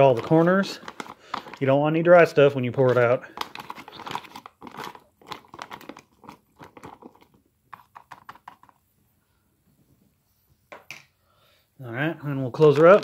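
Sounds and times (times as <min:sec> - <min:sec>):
foil pouch crinkling: 0:00.0 - 0:08.8, 0:12.6 - 0:13.0.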